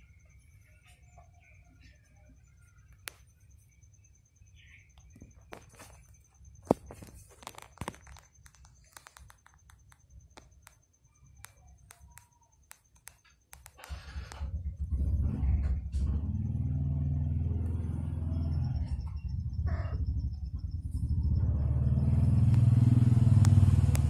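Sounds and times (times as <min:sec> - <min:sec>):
faint clicks and rustles: 0:04.9 - 0:15.0
low motor vehicle rumble: 0:13.8 - 0:24.0.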